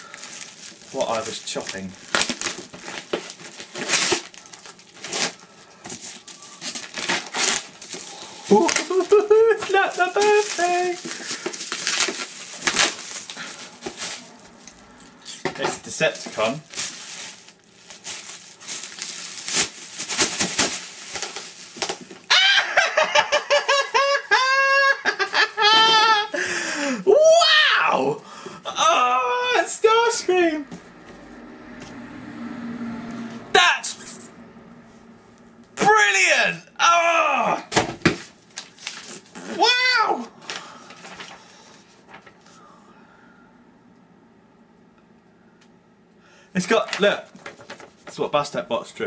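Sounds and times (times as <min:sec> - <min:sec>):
bubble wrap crinkling: 0:00.0 - 0:22.6, 0:38.0 - 0:39.7, 0:40.4 - 0:42.4, 0:46.6 - 0:48.2
man squealing and giggling: 0:08.5 - 0:10.9, 0:22.3 - 0:26.4.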